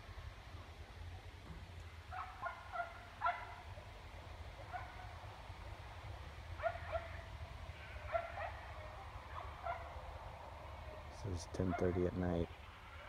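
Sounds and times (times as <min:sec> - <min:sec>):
low steady rumble: 0:00.0 - 0:13.0
dogs barking: 0:02.1 - 0:03.8, 0:04.5 - 0:05.8, 0:06.6 - 0:10.2, 0:10.8 - 0:12.2.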